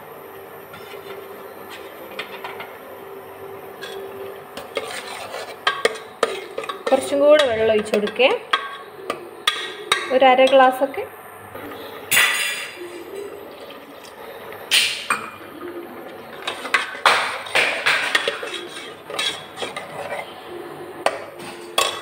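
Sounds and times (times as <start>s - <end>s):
steel ladle scraping a pot: 0.7s - 2.6s, 3.8s - 10.7s, 16.3s - 20.4s.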